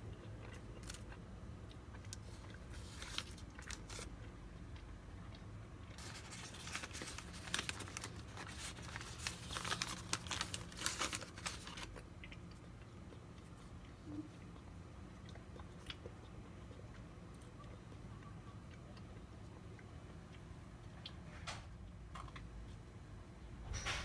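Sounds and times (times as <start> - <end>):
paper bag crinkling and tearing: 2.2 - 4.1, 6.0 - 12.0.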